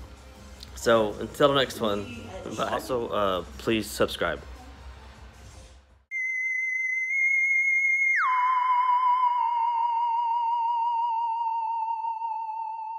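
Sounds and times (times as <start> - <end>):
electronic high tone sliding down: 6.1 - 12.9.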